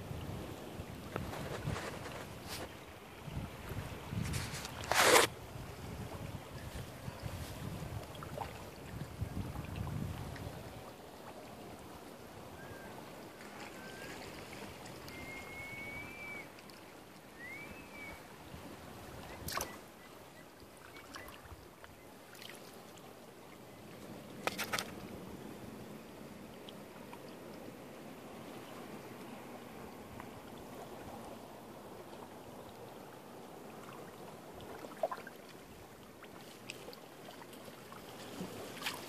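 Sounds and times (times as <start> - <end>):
water lapping at shore: 0.0 - 39.0
faint whistled chirps: 12.5 - 16.6, 17.2 - 18.4, 19.2 - 22.1.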